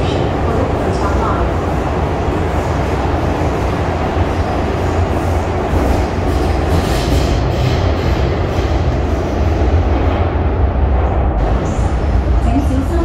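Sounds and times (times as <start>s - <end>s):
train rumbling in tunnel: 0.0s - 13.0s.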